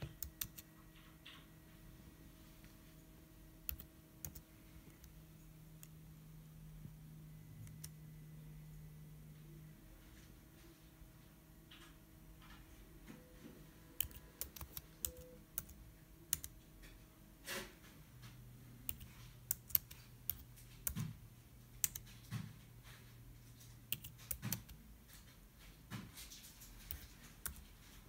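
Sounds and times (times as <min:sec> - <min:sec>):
computer keyboard typing: 0:00.0 - 0:01.4, 0:03.6 - 0:06.0, 0:07.5 - 0:08.0, 0:14.0 - 0:16.6, 0:18.8 - 0:22.6, 0:23.5 - 0:25.3, 0:26.2 - 0:28.0
faint steady hum: 0:00.0 - 0:28.0.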